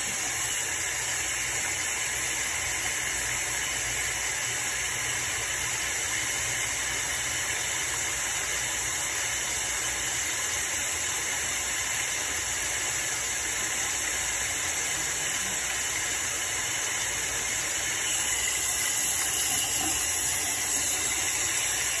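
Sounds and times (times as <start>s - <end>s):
faucet water running over hands: 0.0s - 22.0s
water splashing into basin: 15.6s - 22.0s.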